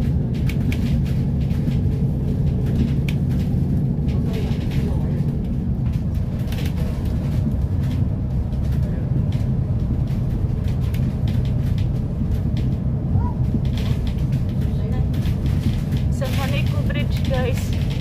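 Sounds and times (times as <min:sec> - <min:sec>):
bus engine and road rumble: 0:00.0 - 0:18.0
rattles and hiss: 0:13.5 - 0:18.0.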